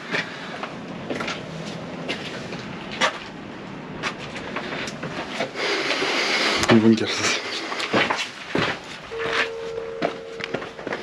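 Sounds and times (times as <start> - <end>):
footsteps on stone: 6.7 - 11.0.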